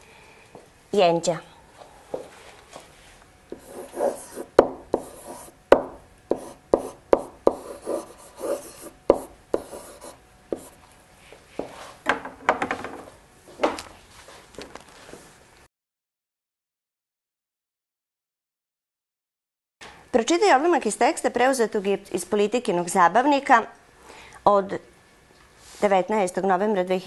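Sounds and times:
pen writing on paper: 0:03.6 - 0:05.6, 0:06.3 - 0:10.8.

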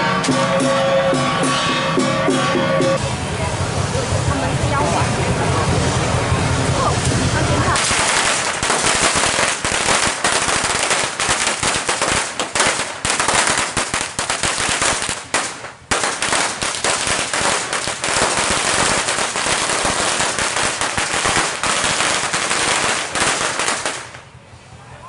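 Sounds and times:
firecrackers crackling: 0:03.0 - 0:24.5.

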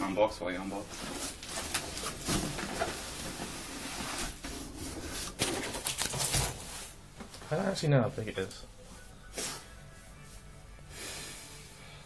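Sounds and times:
cardboard scraping and rustling: 0:00.9 - 0:07.0.

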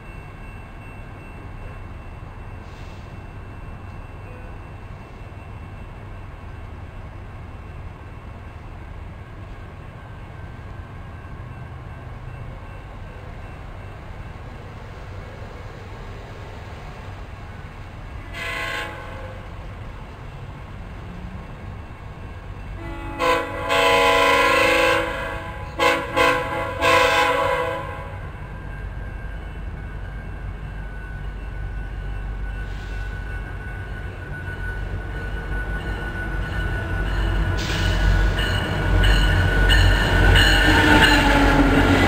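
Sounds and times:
train air horn blasts: 0:18.3 - 0:19.4, 0:22.8 - 0:28.3, 0:40.4 - 0:42.0.

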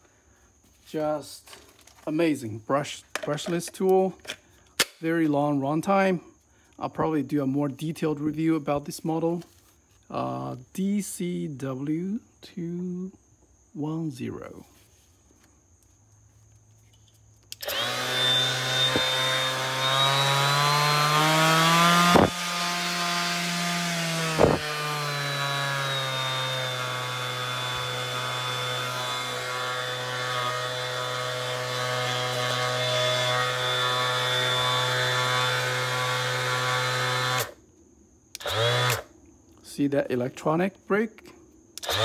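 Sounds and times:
orbital sander motor whine: 0:17.6 - 0:37.6, 0:38.4 - 0:39.1, 0:41.8 - 0:42.0.

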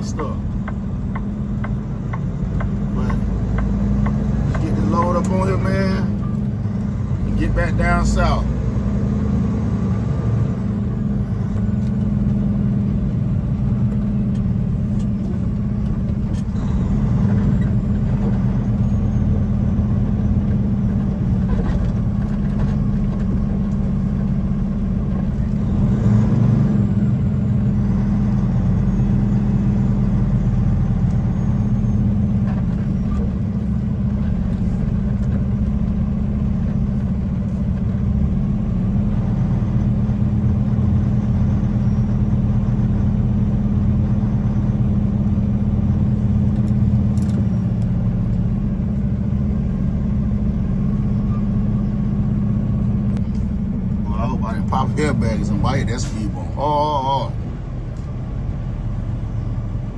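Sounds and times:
diesel truck engine humming: 0:00.0 - 0:59.9.

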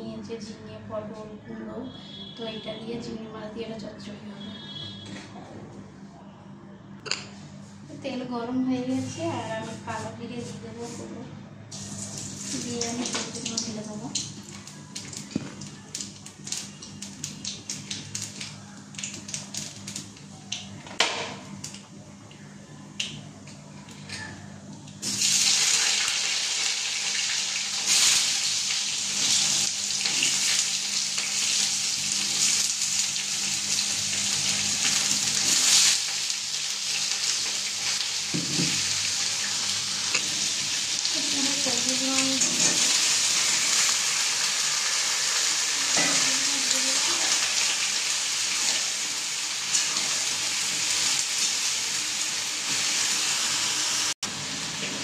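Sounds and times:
vegetables crackling in hot oil: 0:11.7 - 0:20.7, 0:25.0 - 0:55.0
loud steady sizzle: 0:11.7 - 0:22.1, 0:24.9 - 0:55.0.

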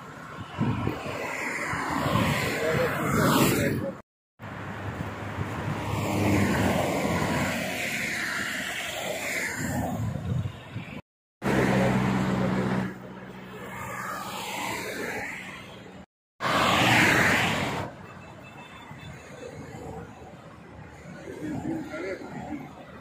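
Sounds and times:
motorway traffic rushing past: 0:00.0 - 0:23.0
steady engine hum: 0:11.4 - 0:16.0.

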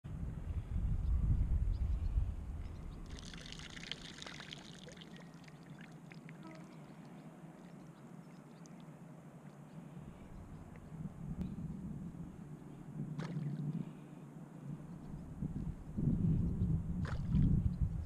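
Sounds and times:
wind on microphone: 0:00.0 - 0:03.8, 0:10.0 - 0:14.0, 0:14.6 - 0:18.0
corn and liquid pouring into water: 0:03.1 - 0:05.1.

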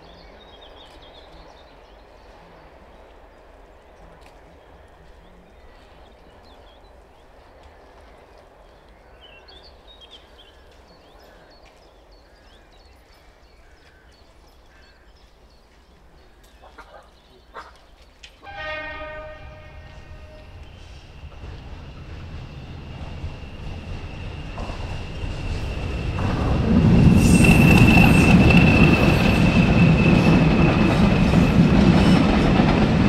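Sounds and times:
birds chirping: 0:08.6 - 0:33.0
diesel locomotive horn blast: 0:18.4 - 0:21.1
locomotive engine rumble: 0:18.6 - 0:33.0.

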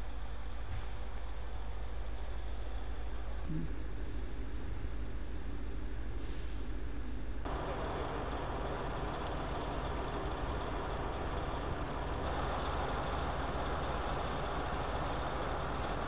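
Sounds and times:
vehicle engine running: 0:07.5 - 0:16.0.

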